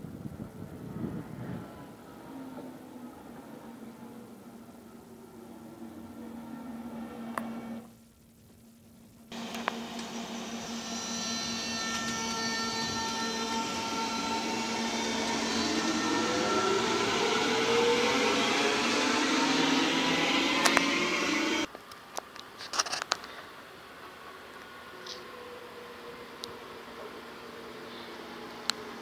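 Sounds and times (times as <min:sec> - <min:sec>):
train motors whining: 0:09.3 - 0:21.7.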